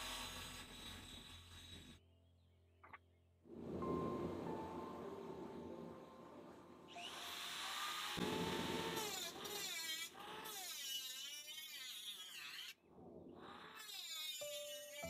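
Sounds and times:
electric grinder whining on metal: 0:00.0 - 0:02.0, 0:06.9 - 0:12.8, 0:13.4 - 0:15.0.

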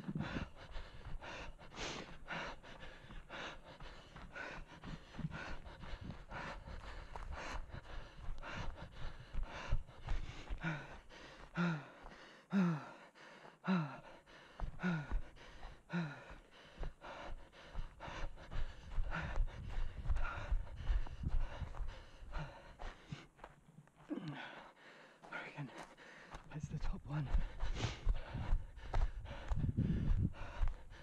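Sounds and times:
runner's hard out-breaths: 0:00.0 - 0:26.5, 0:27.2 - 0:31.0
running footsteps on forest floor: 0:00.0 - 0:31.0.

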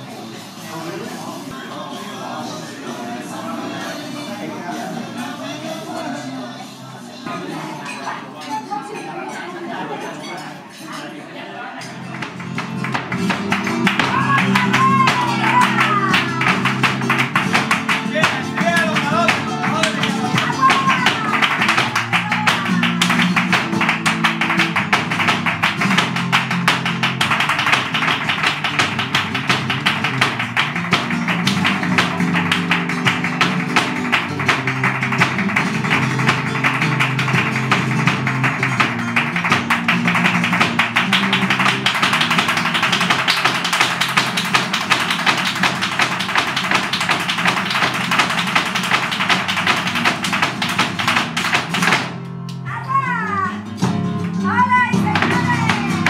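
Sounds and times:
strummed and plucked guitar: 0:11.8 - 0:56.0
heeled shoes tapping on stage: 0:12.2 - 0:52.3, 0:53.8 - 0:56.0.

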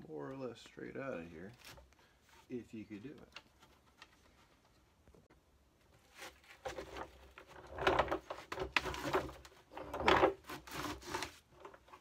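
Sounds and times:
wooden board creaking and scraping: 0:06.1 - 0:12.0.

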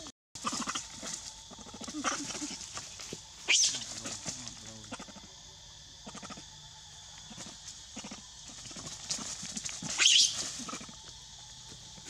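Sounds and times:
monkey squealing: 0:00.4 - 0:02.7, 0:03.4 - 0:04.2, 0:08.0 - 0:11.0
monkeys scampering over dry leaves: 0:00.4 - 0:04.8, 0:08.4 - 0:11.2.

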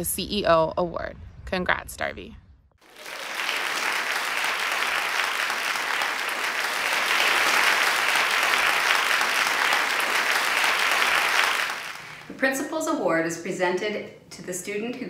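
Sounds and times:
crowd applause: 0:02.8 - 0:12.3.

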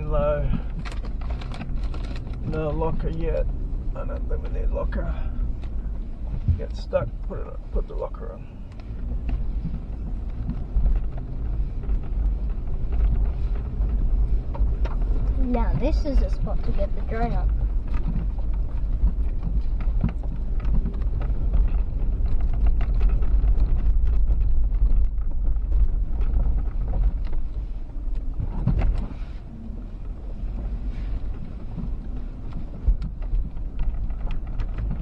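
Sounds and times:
engine and tyres rumbling: 0:00.0 - 0:35.0
knocks and rattles in cabin: 0:28.2 - 0:29.1.

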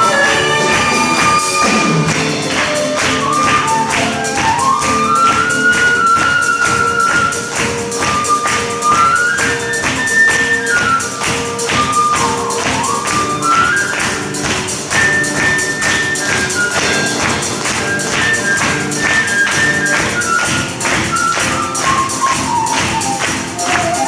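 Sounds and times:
audience clapping along: 0:00.0 - 0:24.0
drum kit beat: 0:00.0 - 0:24.0
flute melody: 0:00.0 - 0:24.0
piano: 0:00.0 - 0:24.0.

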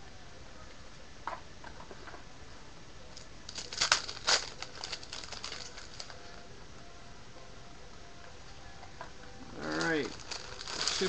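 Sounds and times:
foil wrapper crinkling: 0:03.5 - 0:06.4, 0:09.6 - 0:11.0.

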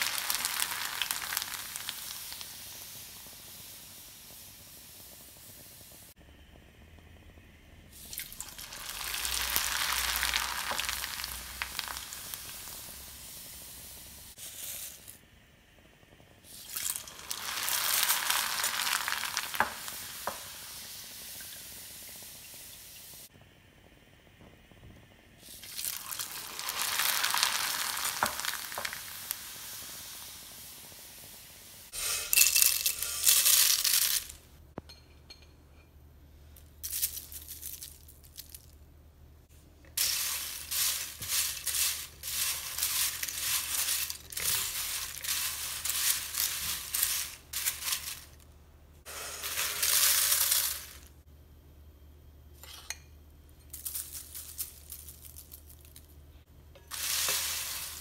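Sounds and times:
food sizzling in hot oil: 0:00.0 - 0:06.2, 0:07.9 - 0:15.2, 0:16.2 - 0:23.3, 0:25.4 - 0:34.5, 0:39.9 - 0:48.4, 0:49.0 - 0:51.2, 0:56.8 - 0:58.0
corn flakes rattling in glass bowl: 0:08.3 - 0:12.7, 0:25.6 - 0:29.0, 0:32.3 - 0:34.4, 0:36.8 - 0:38.7, 0:40.0 - 0:48.4, 0:49.2 - 0:51.1, 0:53.7 - 0:56.1.

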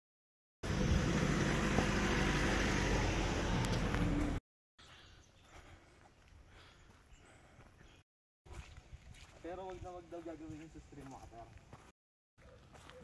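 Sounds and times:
vehicle engine humming: 0:00.6 - 0:04.4.

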